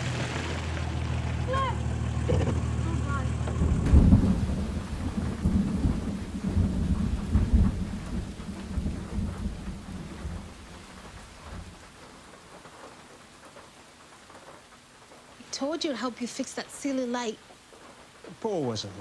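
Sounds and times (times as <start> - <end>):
faint rain hiss: 0.0 - 19.0
rolling thunder: 2.4 - 12.1.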